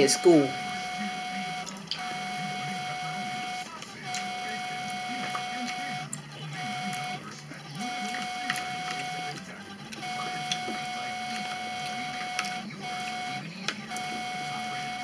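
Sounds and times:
mid-pitched tone: 0.0s - 7.2s.

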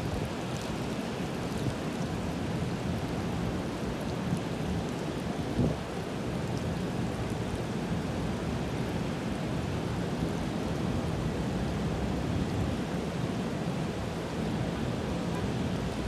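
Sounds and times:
rain: 0.0s - 16.0s
strong wind: 5.2s - 6.0s.

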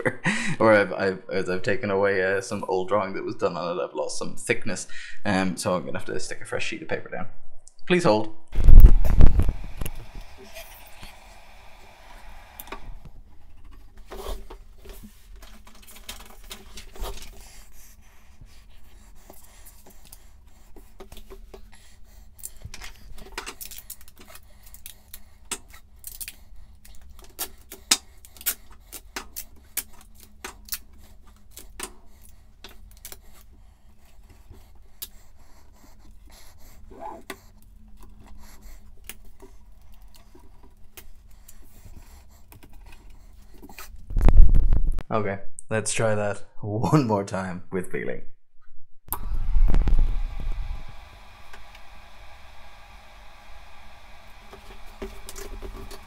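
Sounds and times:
paper and tape handling: 12.6s - 17.9s, 18.6s - 44.7s, 54.4s - 56.0s.

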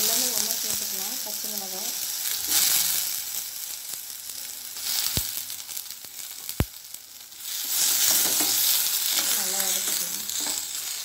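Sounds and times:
vegetables sizzling in oil: 0.0s - 11.0s
spoon stirring vegetables: 7.4s - 11.0s.

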